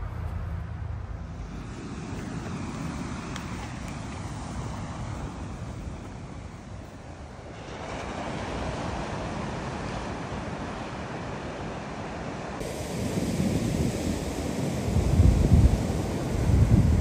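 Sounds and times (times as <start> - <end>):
wind and surf rushing: 0.0 - 17.0
wind buffeting microphone: 12.6 - 17.0.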